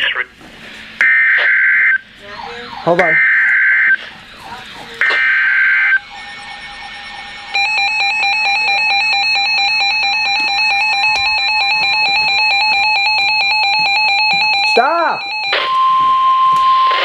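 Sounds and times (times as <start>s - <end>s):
screechy digital data burst: 1.0s - 8.7s
pulsing electronic alarm beeping: 1.0s - 17.0s
steady electronic tone: 1.0s - 17.0s.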